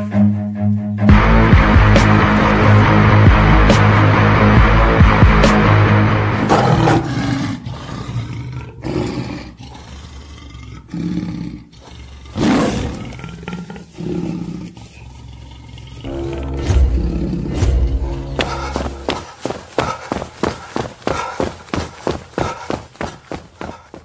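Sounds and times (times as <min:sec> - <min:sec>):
background music: 0:00.0 - 0:06.9, 0:16.0 - 0:21.3
tiger roars: 0:06.5 - 0:16.1.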